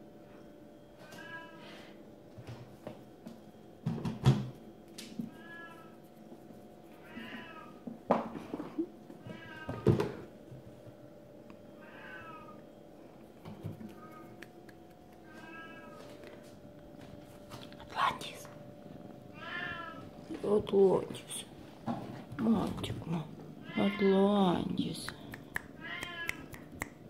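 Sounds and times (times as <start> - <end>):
kitten meowing: 25.8 - 26.6.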